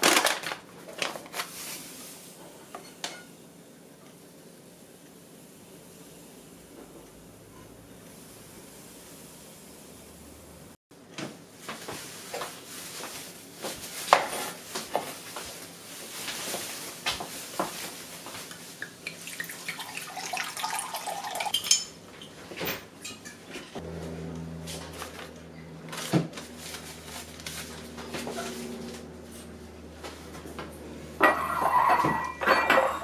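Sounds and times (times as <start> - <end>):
water filling a jug: 18.9 - 21.6
kitchenware knocking and clinking: 31.2 - 33.0.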